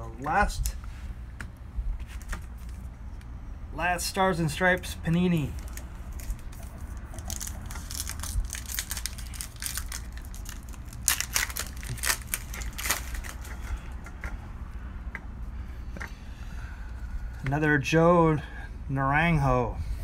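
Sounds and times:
wrapper crinkling and tearing: 0:05.3 - 0:13.6.

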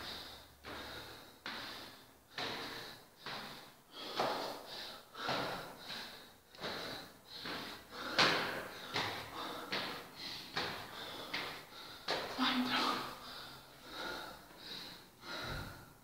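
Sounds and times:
person breathing heavily: 0:00.0 - 0:16.0.

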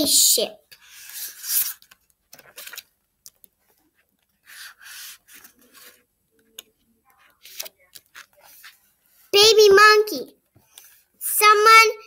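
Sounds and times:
book pages turning: 0:00.7 - 0:09.3.

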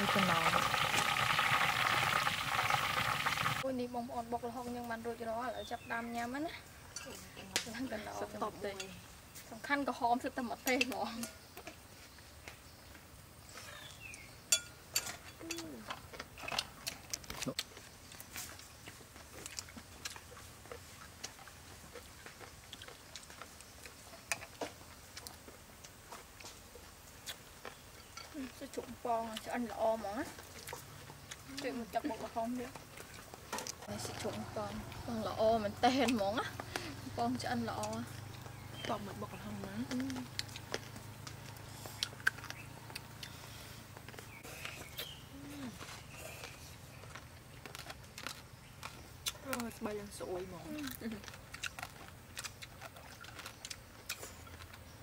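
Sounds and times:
chopsticks and spoon clicking on plates: 0:14.5 - 0:17.6
chewing: 0:15.0 - 0:55.0.

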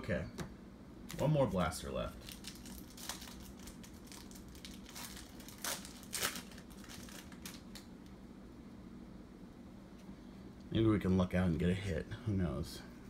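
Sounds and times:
wrapper crinkling: 0:02.1 - 0:07.9
packaging ripping: 0:02.2 - 0:07.9.

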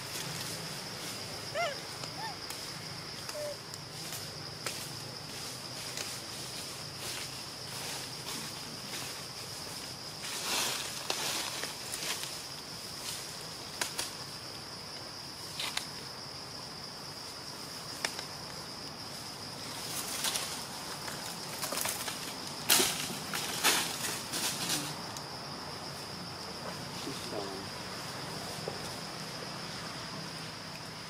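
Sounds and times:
rustling dry leaves and twigs: 0:00.0 - 0:16.2, 0:17.1 - 0:27.4
high-pitched insect drone: 0:00.0 - 0:31.0.

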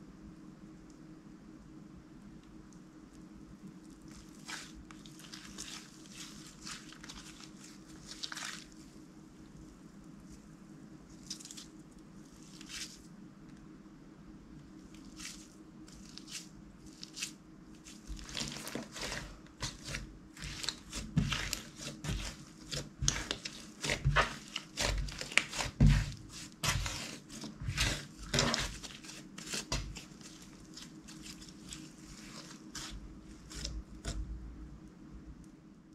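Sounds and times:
slime crackling and popping: 0:17.9 - 0:34.2.

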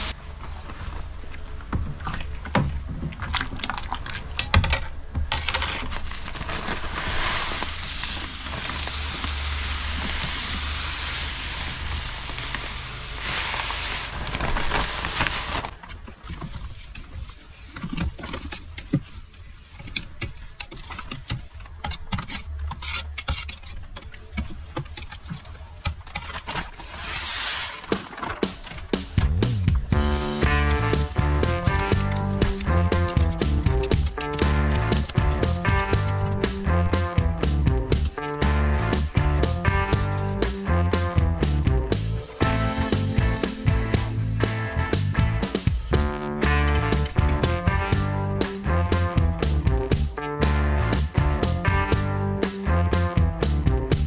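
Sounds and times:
grain pouring into water: 0:06.3 - 0:15.7.

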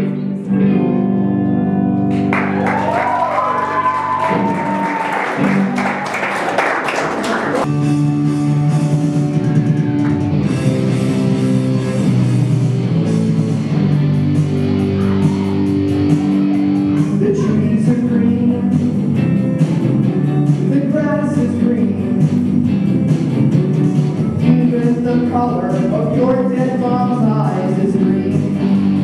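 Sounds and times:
guitar and singing: 0:14.8 - 0:29.0.

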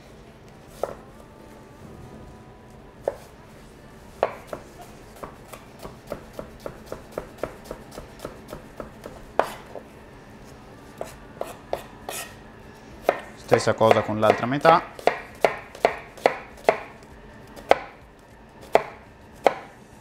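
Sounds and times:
knife chopping on cutting board: 0:04.2 - 0:09.8, 0:11.0 - 0:12.4, 0:13.0 - 0:16.9, 0:17.6 - 0:18.0, 0:18.6 - 0:19.7.

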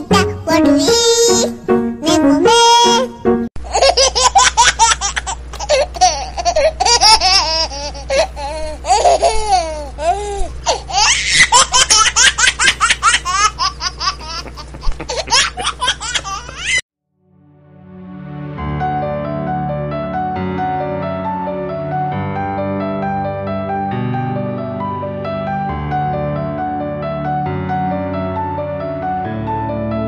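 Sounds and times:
high-pitched giggling: 0:03.6 - 0:16.8
steady low hum: 0:03.6 - 0:16.8.

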